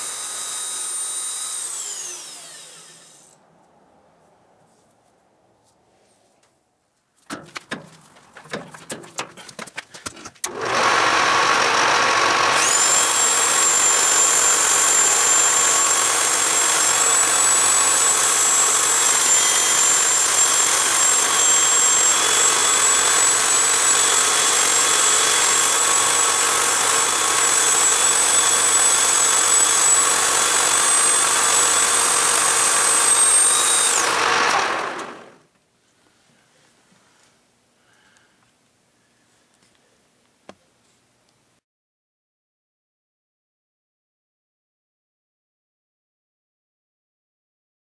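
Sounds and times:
high motor whine: 0:00.0 - 0:03.4, 0:10.5 - 0:35.4
rotary tool grinding metal: 0:00.0 - 0:03.4, 0:10.4 - 0:35.4
clicks and knocks: 0:07.3 - 0:10.5.

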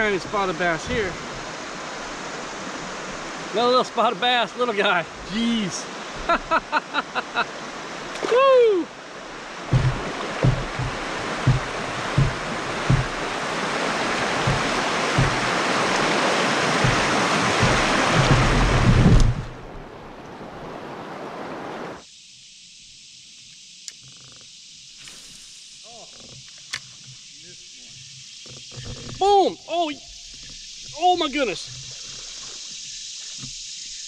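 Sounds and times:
whitewater rushing: 0:00.0 - 0:22.0
faint hiss of calm water: 0:00.0 - 0:34.0
low thumps: 0:09.5 - 0:19.9.

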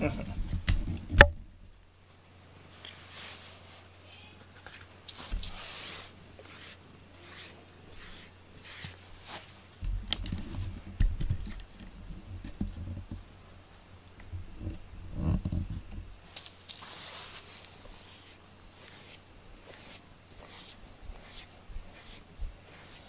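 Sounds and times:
cat rustling and sniffing: 0:02.7 - 0:03.9, 0:05.1 - 0:11.0, 0:16.1 - 0:23.0.

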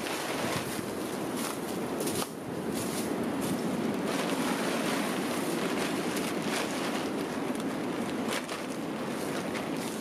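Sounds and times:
plastic tarp rustling: 0:00.0 - 0:02.2, 0:02.8 - 0:10.0
faint crackles: 0:01.4 - 0:10.0.

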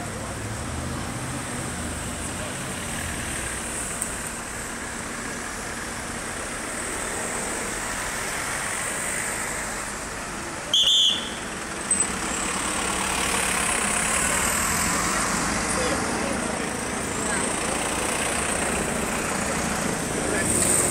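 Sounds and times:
vehicles driving past: 0:00.0 - 0:20.9.

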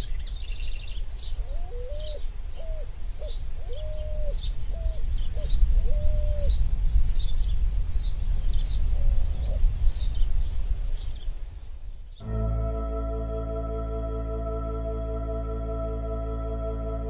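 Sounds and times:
low hooting notes: 0:12.2 - 0:17.0.

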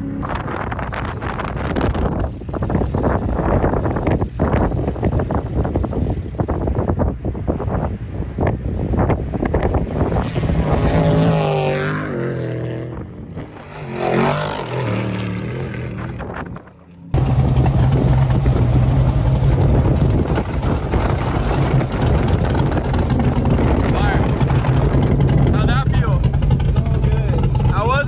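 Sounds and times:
truck engines revving: 0:09.5 - 0:28.0
truck engine idling: 0:17.2 - 0:28.0.

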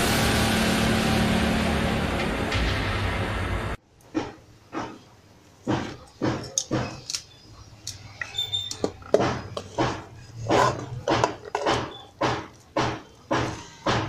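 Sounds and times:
spoon scraping a pan: 0:08.2 - 0:12.6.

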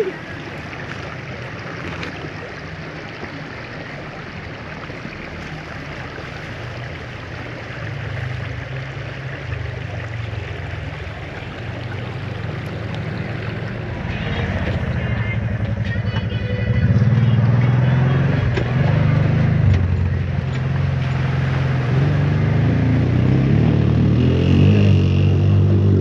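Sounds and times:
creek flowing over stones: 0:00.0 - 0:26.0.

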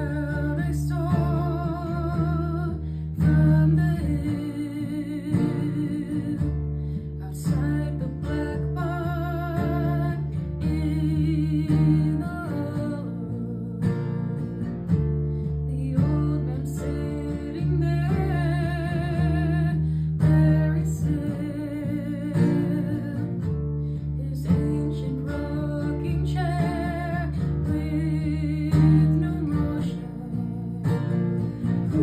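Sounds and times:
woman singing with vibrato: 0:00.0 - 0:06.6, 0:07.2 - 0:14.7, 0:15.7 - 0:23.4, 0:24.2 - 0:32.0.

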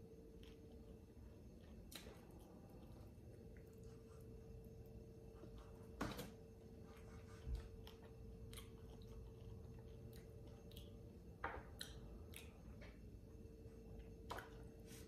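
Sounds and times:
person chewing food: 0:00.0 - 0:06.0, 0:06.6 - 0:15.0
faint steady hum: 0:00.0 - 0:15.0.

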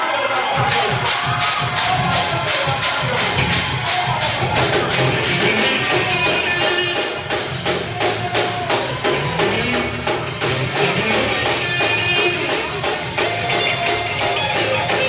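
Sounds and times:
gospel band music: 0:00.0 - 0:15.0
drum kit and tambourine beat: 0:00.6 - 0:15.0.

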